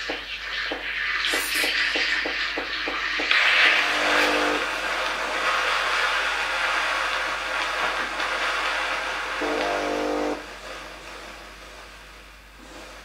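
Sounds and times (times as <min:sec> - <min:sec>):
steam wand hissing: 0:00.0 - 0:13.0
pump humming: 0:01.3 - 0:10.6.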